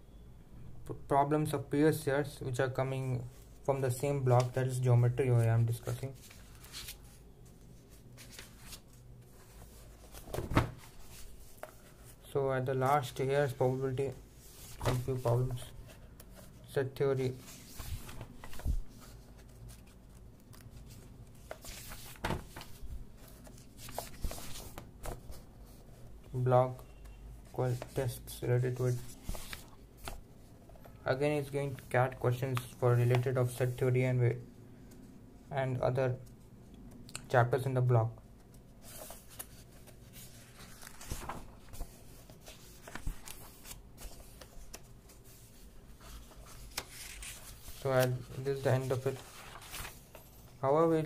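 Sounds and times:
book pages rustling: 0:05.4 - 0:12.2, 0:12.8 - 0:26.1, 0:26.8 - 0:30.8, 0:38.4 - 0:50.6
soft thumps of book: 0:14.7 - 0:15.2.

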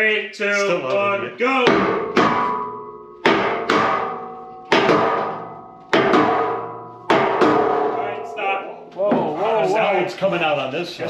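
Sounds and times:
steel trailer ringing: 0:01.1 - 0:08.8
sledgehammer striking wood: 0:01.7 - 0:08.0.

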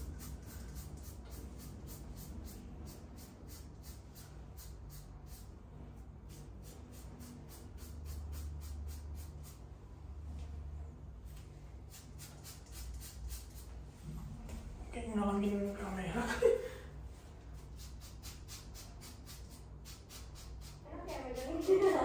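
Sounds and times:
razor scraping scalp: 0:00.0 - 0:05.5, 0:06.3 - 0:09.6, 0:11.9 - 0:13.7, 0:17.6 - 0:22.0.

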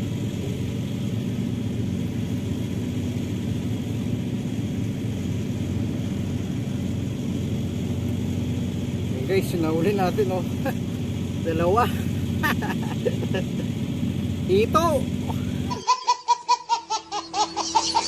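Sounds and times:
low outdoor rumble: 0:00.0 - 0:18.0.

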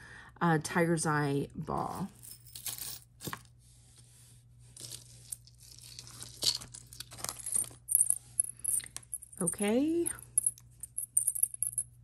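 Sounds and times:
jewelry rustling and clicking: 0:04.8 - 0:12.0.

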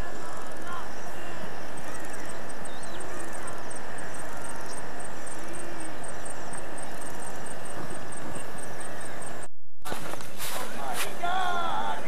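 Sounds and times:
faint chirps: 0:00.0 - 0:09.5
rushing outdoor noise: 0:00.0 - 0:12.0.

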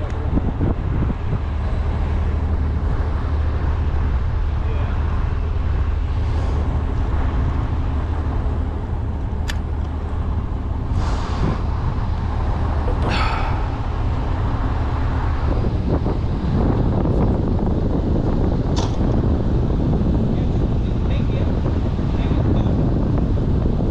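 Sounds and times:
diesel engines idling: 0:00.0 - 0:23.9
sharp click: 0:09.4 - 0:10.0, 0:18.8 - 0:19.0
short hisses: 0:10.9 - 0:11.6, 0:13.0 - 0:13.9.

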